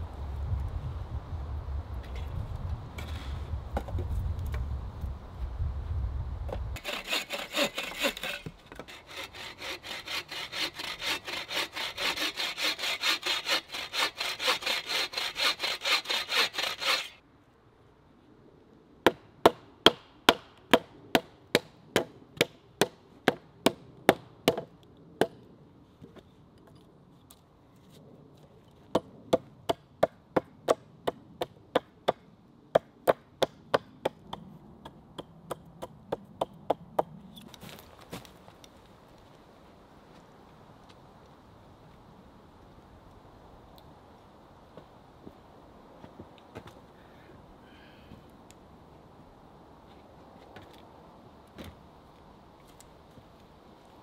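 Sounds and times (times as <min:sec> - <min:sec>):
hand saw cutting wood: 0:06.8 - 0:17.2
hatchet chopping wood: 0:19.1 - 0:25.4.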